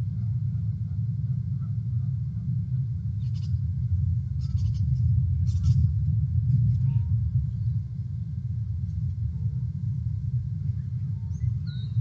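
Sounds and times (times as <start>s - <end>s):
low rumble: 0.0s - 12.0s
eagle calling: 4.4s - 5.9s, 10.7s - 12.0s.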